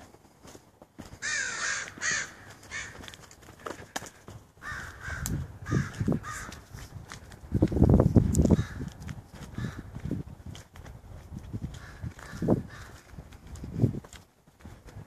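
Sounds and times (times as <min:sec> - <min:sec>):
crow cawing: 0:01.2 - 0:04.0, 0:04.6 - 0:06.7, 0:08.5 - 0:10.0, 0:11.7 - 0:13.1.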